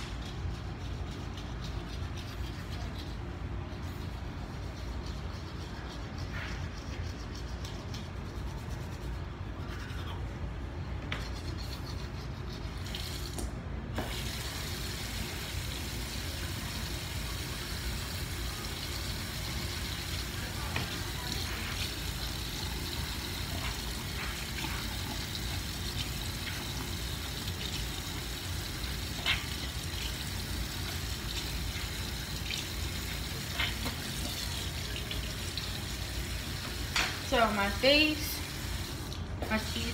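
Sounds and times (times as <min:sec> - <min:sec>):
water running from sink tap: 0:14.0 - 0:39.9.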